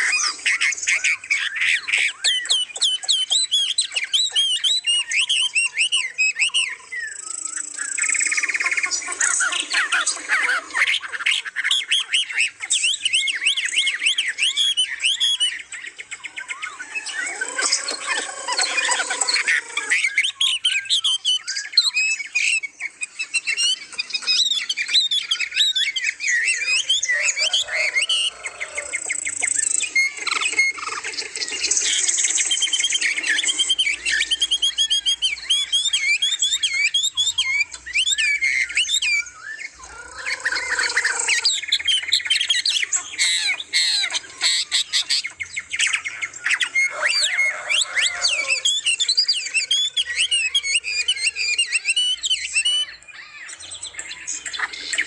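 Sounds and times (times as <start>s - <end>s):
chorus of songbirds: 0.0s - 55.0s.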